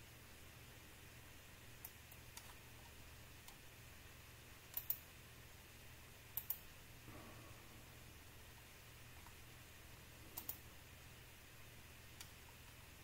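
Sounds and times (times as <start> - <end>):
faint low hum: 0.0 - 13.0
computer mouse clicking: 1.8 - 3.6, 4.7 - 5.1, 6.3 - 6.7, 10.3 - 10.6, 12.1 - 12.8.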